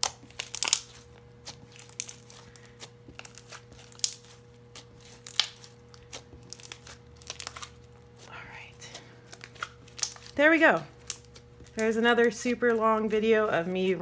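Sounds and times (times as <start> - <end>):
slime clicking and popping: 0.0 - 1.0, 3.1 - 7.7, 9.4 - 10.3.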